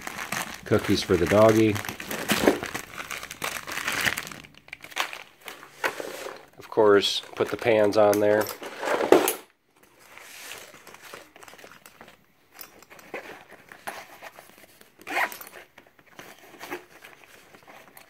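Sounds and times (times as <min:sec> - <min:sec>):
fabric bag rustling: 0:00.0 - 0:06.5.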